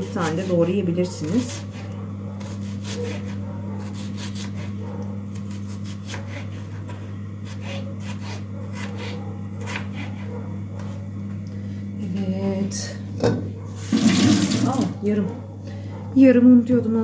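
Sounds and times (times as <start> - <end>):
knife slicing onion on board: 0.2 - 10.9.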